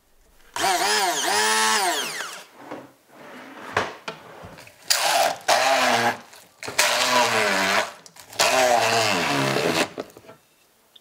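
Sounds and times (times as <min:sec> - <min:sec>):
immersion blender motor whining: 0:00.6 - 0:02.5, 0:04.9 - 0:10.0.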